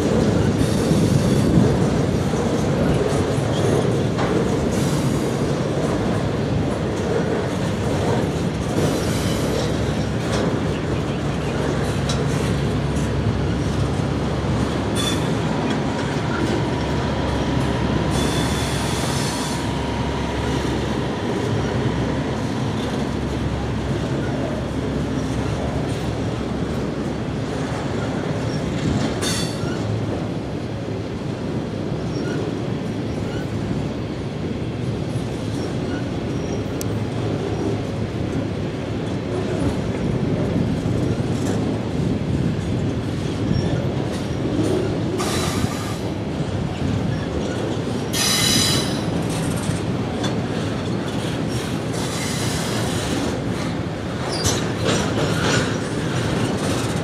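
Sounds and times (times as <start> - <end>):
freight train cars clattering: 0.0 - 57.0
train wheel squeal: 8.8 - 10.1, 14.9 - 21.9, 23.9 - 25.6, 27.8 - 30.0, 32.0 - 32.5, 33.1 - 33.6, 35.5 - 36.8, 43.4 - 46.1, 47.0 - 49.8, 50.5 - 57.0.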